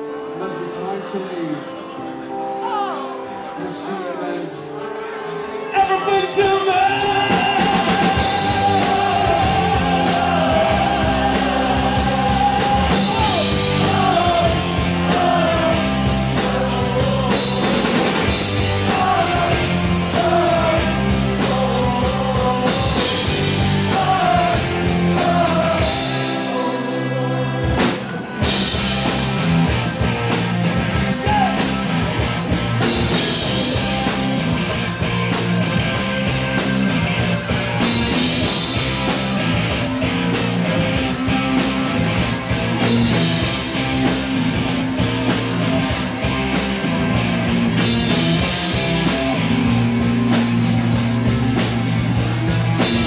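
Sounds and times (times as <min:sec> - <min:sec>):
live rock band playing: 0:04.5 - 0:53.0
man singing: 0:05.7 - 0:28.2.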